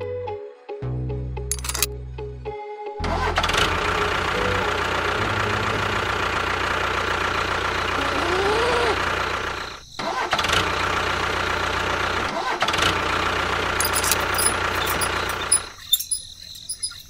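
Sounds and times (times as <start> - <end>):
small motor running: 6.8 - 9.8, 13.8 - 15.8.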